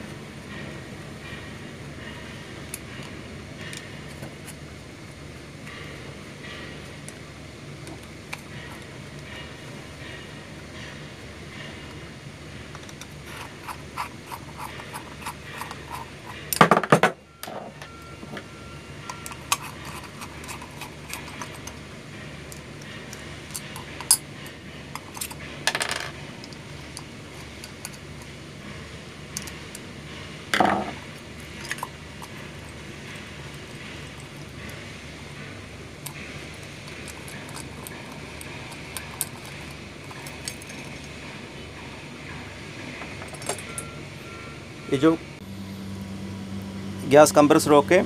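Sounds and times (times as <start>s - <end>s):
screwdriver clicking and scraping: 12.7s - 16.7s, 19.0s - 21.8s, 22.4s - 25.5s, 26.4s - 28.3s, 30.6s - 34.8s, 36.0s - 41.2s.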